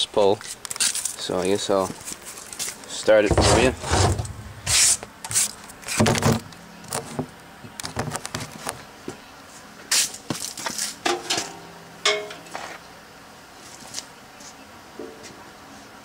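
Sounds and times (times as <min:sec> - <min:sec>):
handling knocks and scrapes: 0:01.8 - 0:07.3.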